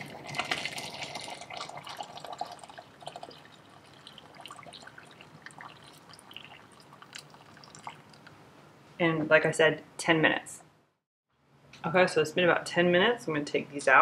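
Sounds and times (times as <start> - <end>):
hot water pouring into pot: 0.0 - 8.3.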